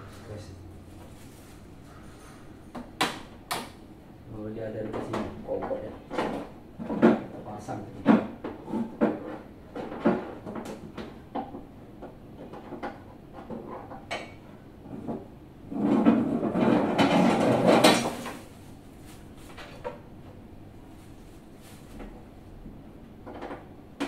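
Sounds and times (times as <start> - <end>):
rustling scrape: 0.9 - 2.5, 15.7 - 19.8, 20.9 - 22.2.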